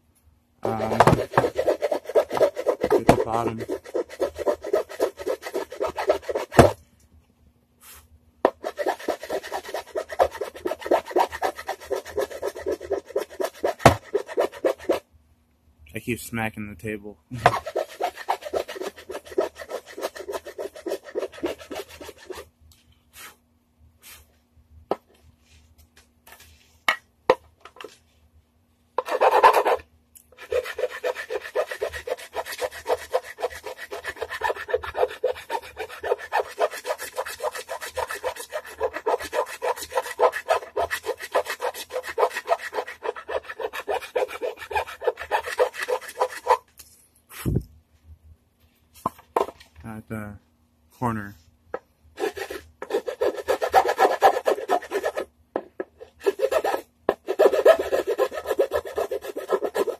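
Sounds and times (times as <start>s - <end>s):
rasping strokes on wood: 0.6s - 6.8s, 8.5s - 15.0s, 17.4s - 22.4s, 29.0s - 29.8s, 30.4s - 46.6s, 52.2s - 59.9s.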